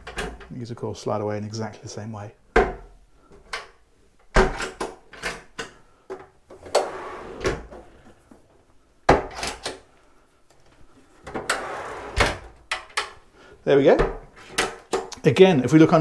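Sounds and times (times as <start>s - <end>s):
cabinet doors knocking and clicking: 2.5s - 3.7s, 4.3s - 5.5s, 9.1s - 9.7s, 13.9s - 15.1s.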